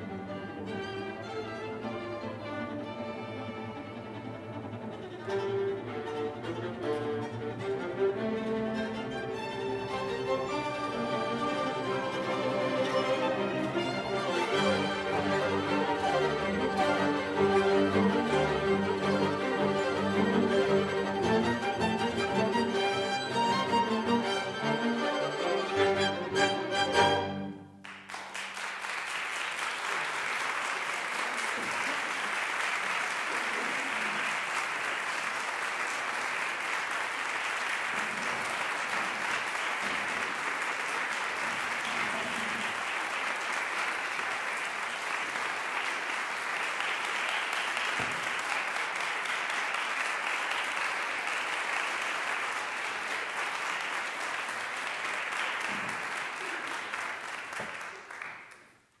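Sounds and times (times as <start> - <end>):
audience applauding: 8.8 - 59.0.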